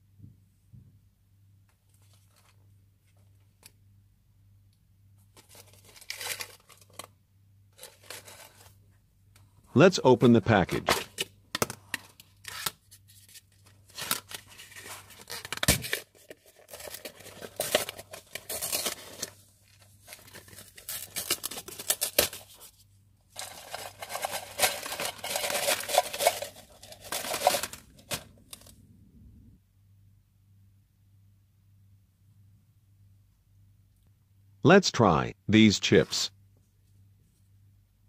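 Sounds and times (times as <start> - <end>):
foil seal tearing and crackling: 5.4 - 7.1, 13.8 - 19.4, 20.1 - 22.6, 23.4 - 28.6
crisps rattling onto table: 23.4 - 28.7.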